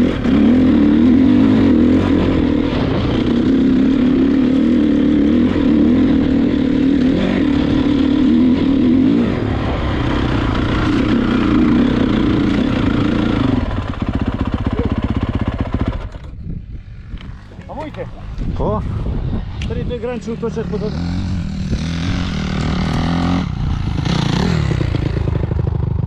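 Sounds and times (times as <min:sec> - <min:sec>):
dirt bike engine revving: 0:00.0 - 0:25.9.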